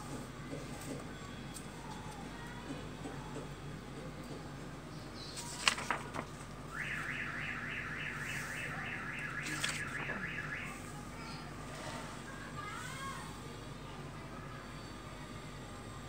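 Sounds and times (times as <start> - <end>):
electronic alarm chirping: 6.8 - 10.7.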